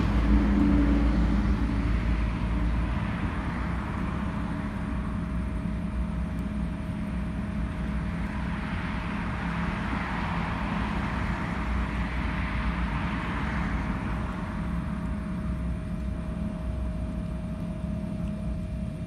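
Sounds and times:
vehicle passing: 0.0 - 4.3, 8.7 - 14.8
steady low hum: 0.0 - 19.0.

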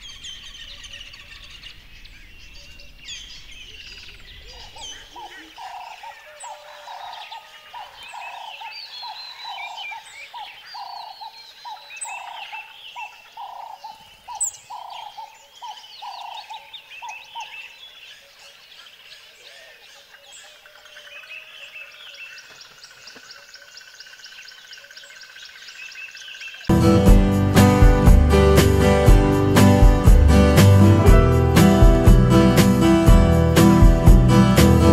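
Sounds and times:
forest birds chirping: 0.0 - 26.7.

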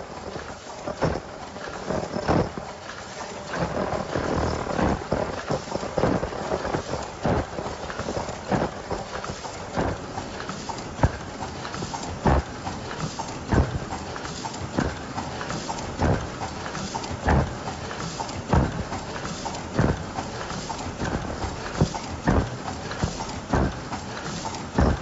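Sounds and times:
machine clacking: 0.0 - 25.0
steady machine noise: 0.0 - 25.0.

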